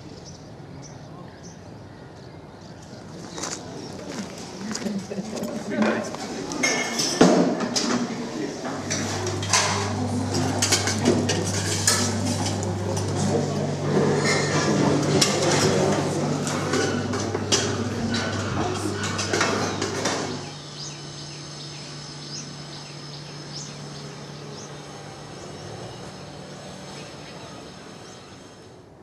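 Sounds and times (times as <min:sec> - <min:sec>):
steady low hum: 0:01.5 - 0:29.0
steel pans and utensils clattering: 0:06.6 - 0:20.5
bird chirps: 0:20.4 - 0:27.5.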